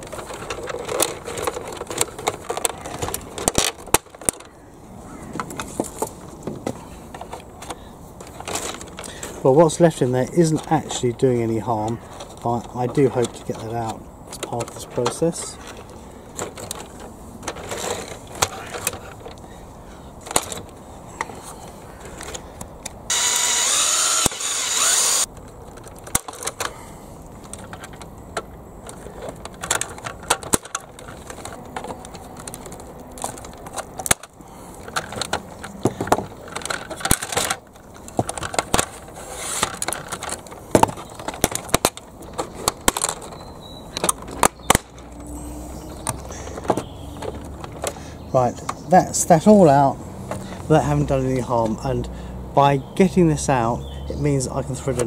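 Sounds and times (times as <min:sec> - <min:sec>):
hard plastic clicks and scrapes: 0:00.0 - 0:04.5, 0:05.3 - 0:09.4, 0:11.7 - 0:19.5, 0:22.0 - 0:48.9
cordless drill running: 0:23.1 - 0:25.3.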